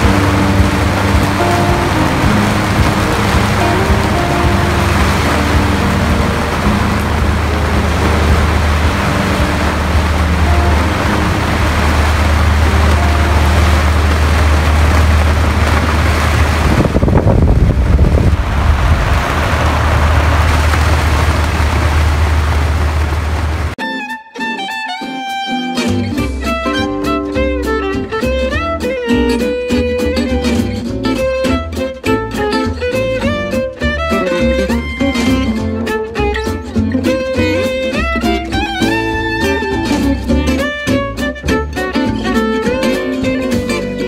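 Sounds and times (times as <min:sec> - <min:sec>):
low rumble: 0:00.0 - 0:23.8
wind and water rushing: 0:00.0 - 0:23.8.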